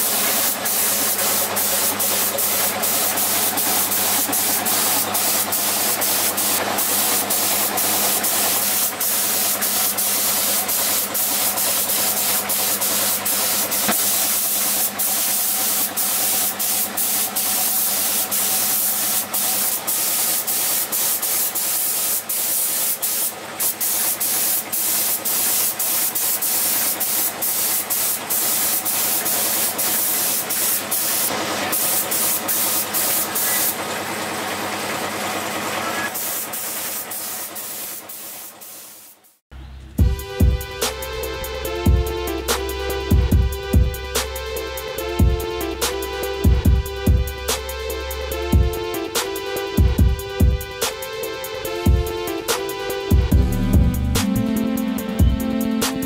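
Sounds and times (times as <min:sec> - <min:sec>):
spray gun hissing: 0:00.0 - 0:33.9, 0:35.9 - 0:39.4.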